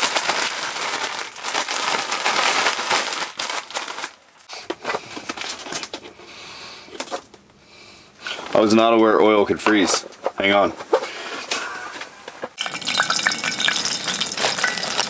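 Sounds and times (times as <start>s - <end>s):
plastic bag crinkling: 0.0s - 6.0s, 12.6s - 15.0s.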